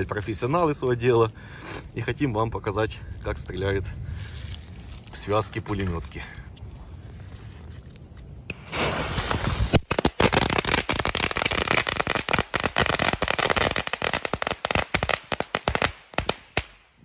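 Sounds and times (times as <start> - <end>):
gunpowder flaring with a hiss: 6.8 - 16.6
firecrackers crackling: 8.0 - 16.8.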